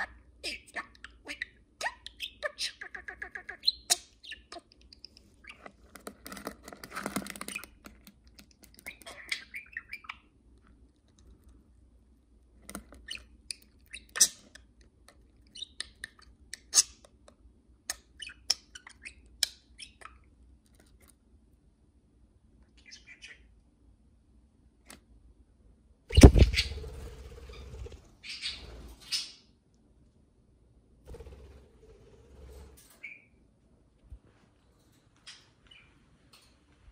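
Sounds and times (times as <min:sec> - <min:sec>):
budgerigars chirping: 0:02.1 - 0:05.7, 0:08.8 - 0:10.3, 0:22.8 - 0:23.4, 0:26.1 - 0:26.8, 0:27.4 - 0:29.4.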